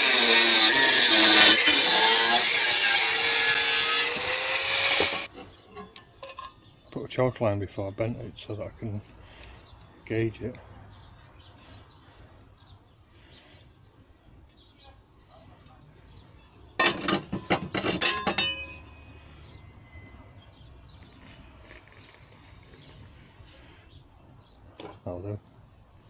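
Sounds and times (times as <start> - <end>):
short metallic ring: 18.0 - 19.2.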